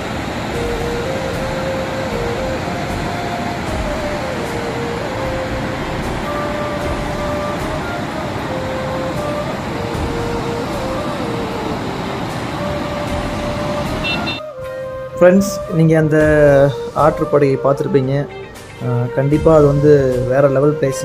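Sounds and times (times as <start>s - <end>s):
waterfall roaring: 0.0s - 14.4s
soft melody of held notes: 0.0s - 21.0s.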